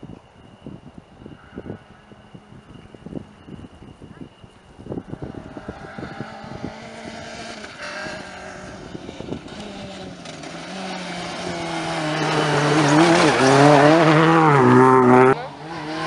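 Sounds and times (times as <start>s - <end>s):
rally car engine at full throttle: 4.8s - 16.0s.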